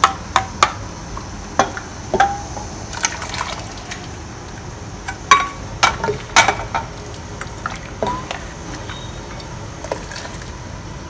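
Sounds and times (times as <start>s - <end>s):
ladle scraping and knocking pots: 1.6s - 10.6s
soup pouring into pot: 2.9s - 11.0s.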